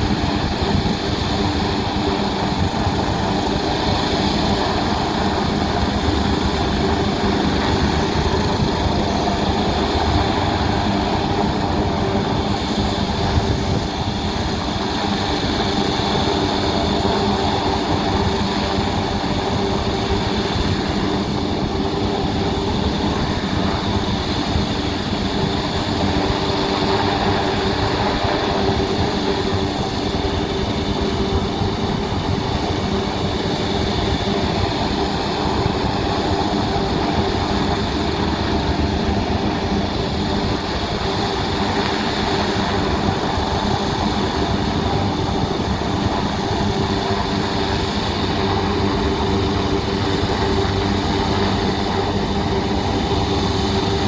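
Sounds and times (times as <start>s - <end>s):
helicopter rotor beating: 0.0s - 54.0s.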